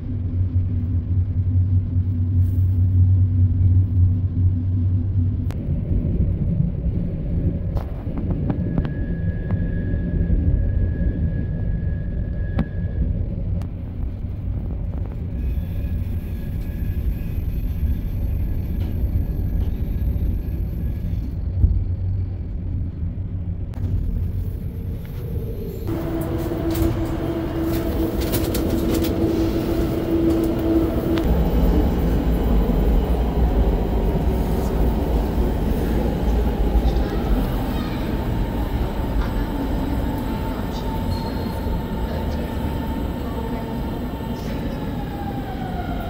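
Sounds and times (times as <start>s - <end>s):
steady whine: 0.0s - 46.0s
train rumbling on rails: 0.0s - 46.0s.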